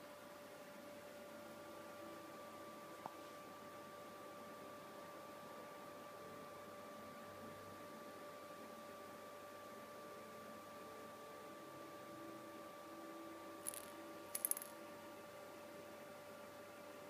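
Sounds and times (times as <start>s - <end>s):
faint steady hum: 0.0s - 17.0s
small metallic clicks: 13.7s - 14.8s.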